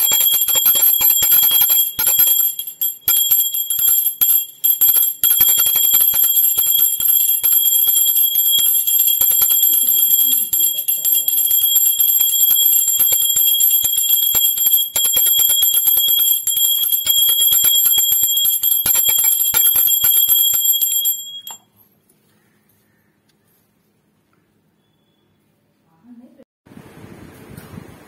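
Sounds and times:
hand bell ringing rapidly: 0.0s - 21.7s.

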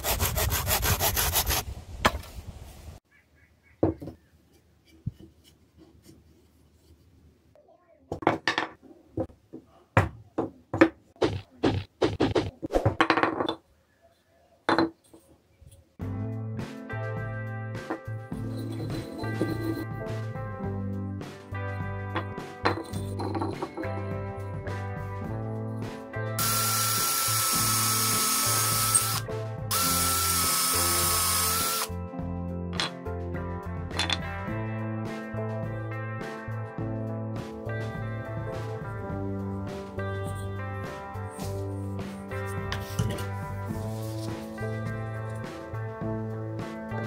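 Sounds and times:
cordless drill whining: 26.4s - 31.9s.

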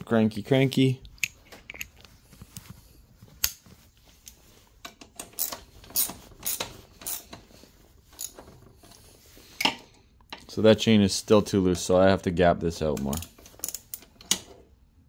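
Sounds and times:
ratchet wrench clicking: 5.2s - 7.3s, 8.2s - 8.4s, 13.1s - 14.1s.

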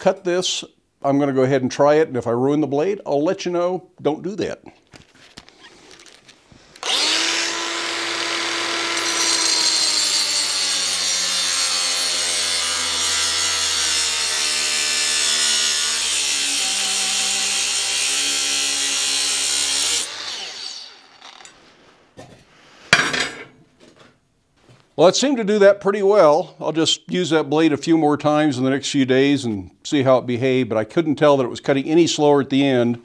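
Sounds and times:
angle grinder cutting steel: 6.8s - 21.6s.

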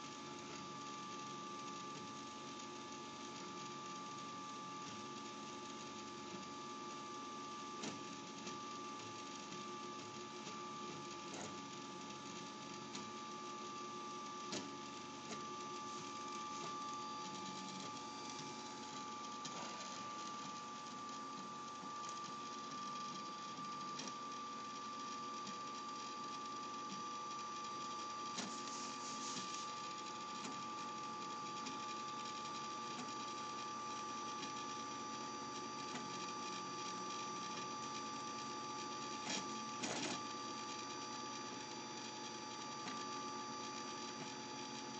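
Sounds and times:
printer stepper motors whining: 0.0s - 44.9s.

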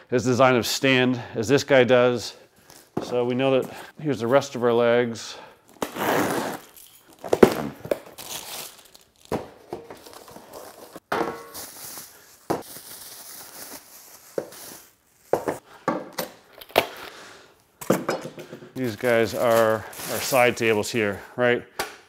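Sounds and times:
plastic wrapping crinkling: 6.6s - 15.5s, 18.8s - 20.9s.

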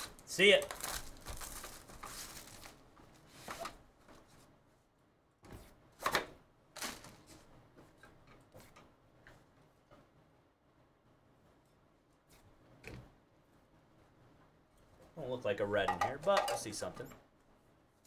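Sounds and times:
cardboard and plastic scraping: 0.0s - 3.8s.

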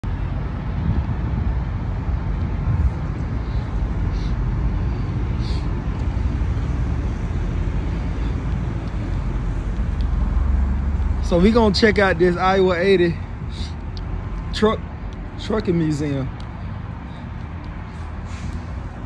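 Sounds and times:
low outdoor rumble: 0.0s - 19.0s.

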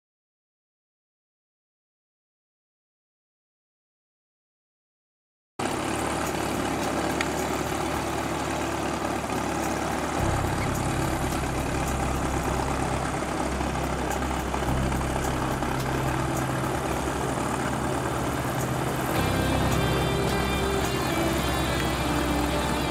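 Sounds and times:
propeller aircraft engine running: 5.6s - 22.9s.

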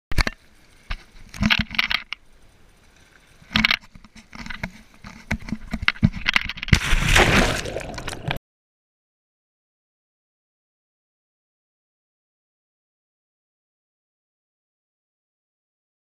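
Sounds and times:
camera handling knocks and scrapes: 3.5s - 6.7s
loud splash into water: 6.7s - 8.4s
underwater rushing and bubbles: 6.8s - 8.4s.

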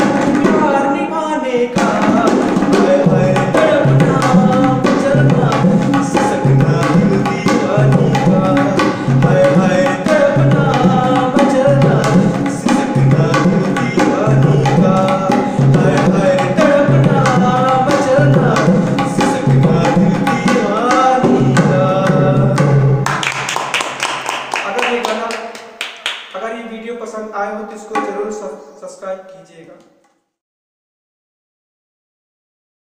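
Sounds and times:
man singing: 0.0s - 23.0s
tabla drum strokes: 1.8s - 23.2s.

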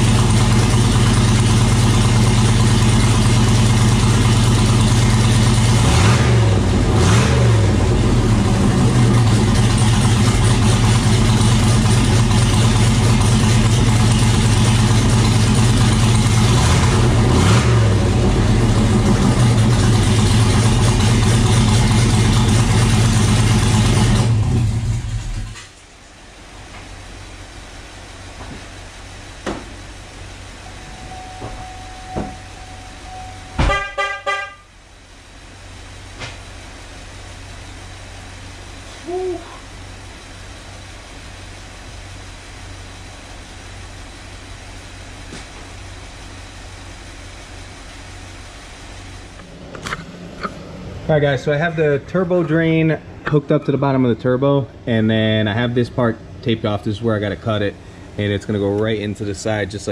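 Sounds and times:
car engine idling and revving: 0.0s - 59.9s
faint hum: 26.0s - 33.8s.

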